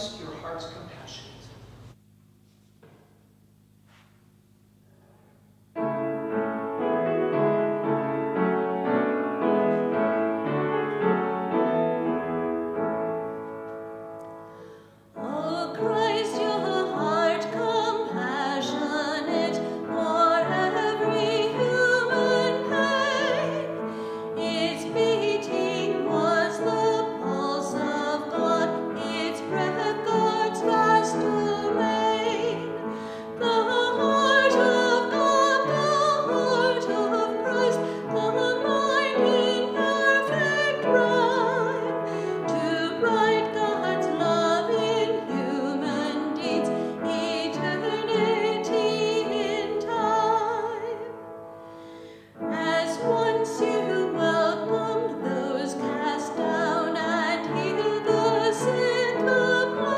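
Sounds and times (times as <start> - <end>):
woman singing a hymn: 15.1 - 51.2, 52.4 - 59.9.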